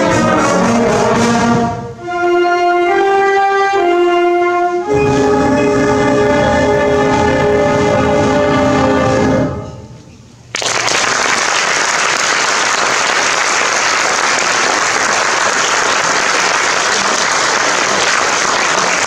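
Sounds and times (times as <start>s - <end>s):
audience applause: 10.5s - 19.0s.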